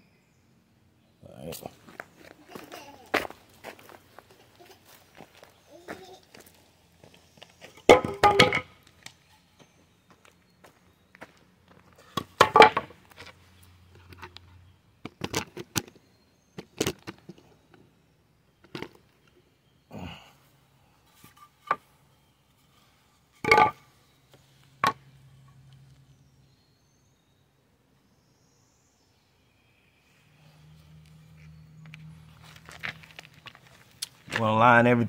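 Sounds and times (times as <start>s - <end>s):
wooden boards knocking: 7.9s - 8.7s, 12.4s - 13.0s, 23.4s - 23.8s.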